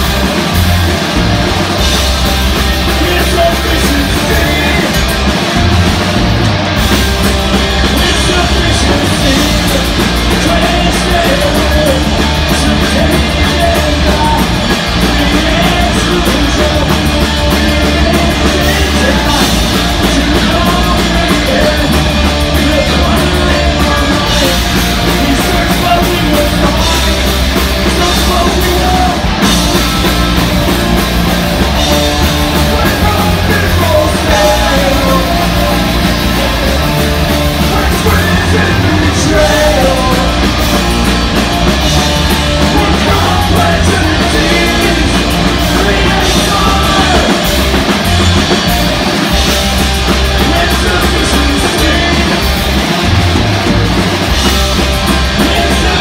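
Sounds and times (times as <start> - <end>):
rock band playing loud: 0.0 - 56.0
person singing: 2.8 - 5.2, 7.8 - 29.4, 32.3 - 41.1, 42.0 - 48.4, 50.2 - 52.9, 55.2 - 56.0.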